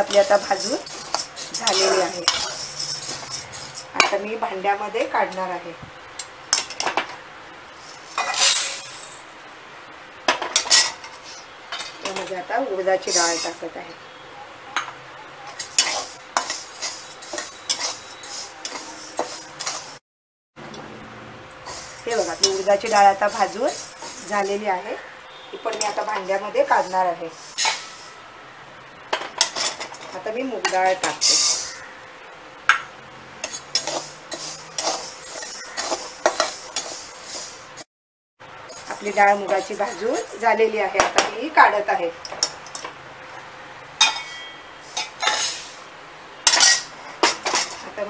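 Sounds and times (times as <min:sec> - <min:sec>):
grains rustling: 0:00.0 - 0:04.0, 0:07.8 - 0:09.4, 0:15.5 - 0:20.0, 0:21.6 - 0:24.7, 0:33.4 - 0:37.8, 0:38.6 - 0:40.7
metal spatula scraping pan: 0:00.0 - 0:04.3, 0:07.8 - 0:09.2, 0:15.5 - 0:20.0, 0:21.6 - 0:28.2, 0:29.2 - 0:31.9, 0:33.4 - 0:37.8, 0:38.7 - 0:41.3, 0:44.0 - 0:45.8, 0:46.4 - 0:47.9.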